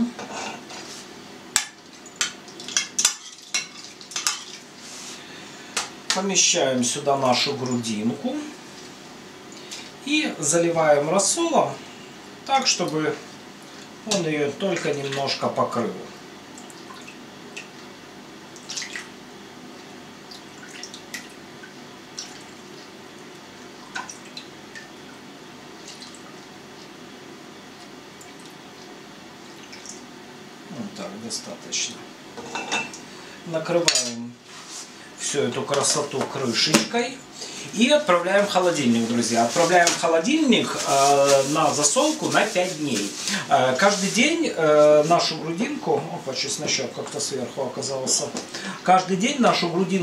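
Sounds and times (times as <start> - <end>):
liquid dripping and splashing: 1.6 - 4.7, 16.5 - 17.9, 18.5 - 19.2, 20.2 - 22.9, 23.6 - 25.2, 25.8 - 26.9, 27.8 - 30.1.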